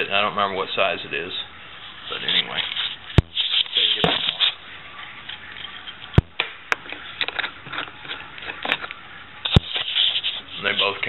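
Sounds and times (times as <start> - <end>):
metal parts scraping and rustling: 2.1 - 4.6, 6.9 - 11.0.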